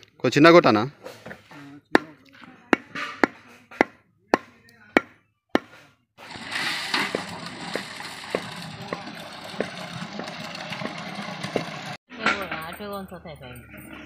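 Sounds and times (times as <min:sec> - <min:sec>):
cleaver chopping meat on wood: 0:02.8 - 0:05.8
hose water splashing: 0:06.2 - 0:11.9.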